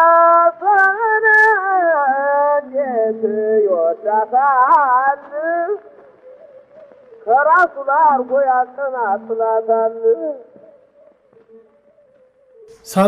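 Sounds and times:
man singing: 0:12.8 - 0:13.0.

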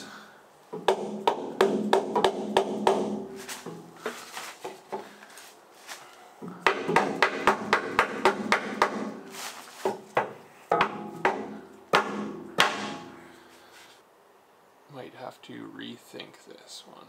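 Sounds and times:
hammer striking wooden drift: 0:00.7 - 0:05.2, 0:06.4 - 0:13.3.

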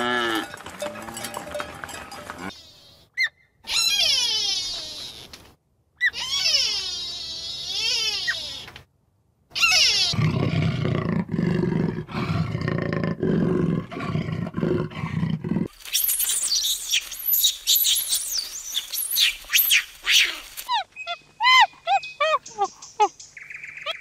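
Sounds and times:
leopard growling: 0:10.1 - 0:15.7
high falling chirping calls: 0:15.9 - 0:24.0.

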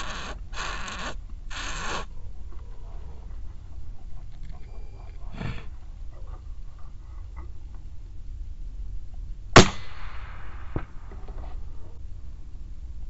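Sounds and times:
rifle shot with echo: 0:09.6 - 0:11.1.

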